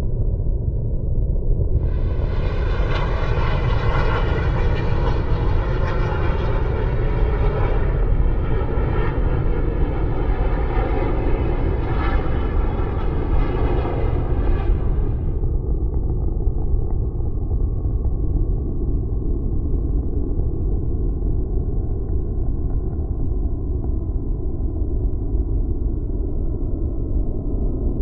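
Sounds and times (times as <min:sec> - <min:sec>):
jet aircraft roaring overhead: 0:01.8 - 0:15.6.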